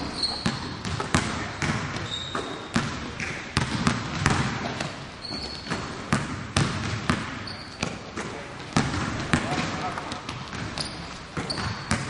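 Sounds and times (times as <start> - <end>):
shoe squeak: 0.0 - 1.1, 2.0 - 2.8, 5.2 - 5.8, 7.4 - 8.0, 10.7 - 12.0
basketballs bouncing on gym floor: 0.0 - 12.0.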